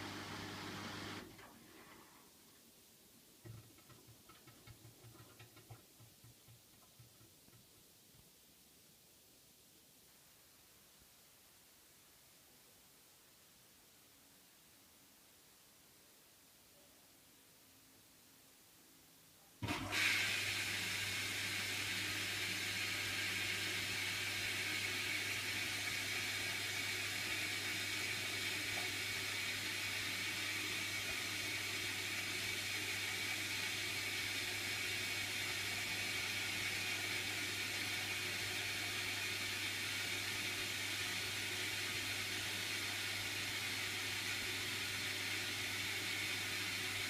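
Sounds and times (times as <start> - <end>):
washing machine running: 0.0 - 1.4, 19.6 - 47.0.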